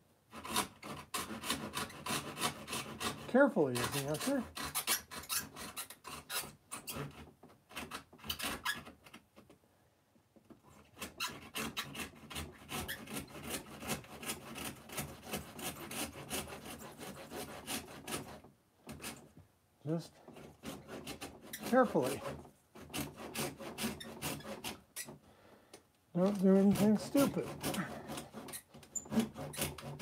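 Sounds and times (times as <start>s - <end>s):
knife sawing through foam and wood: 0.3s - 9.0s, 10.6s - 19.3s, 19.9s - 25.2s, 26.2s - 30.0s.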